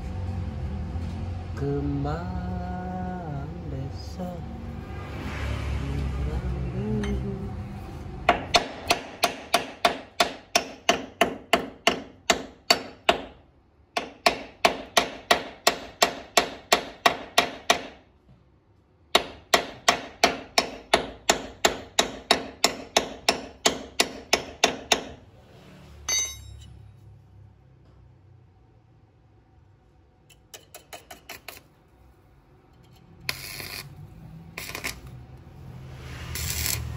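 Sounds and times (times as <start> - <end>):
hammer striking steel: 8.3 - 13.4, 14.0 - 18.0, 19.1 - 25.2, 26.1 - 26.8
metallic clink: 26.1 - 26.8.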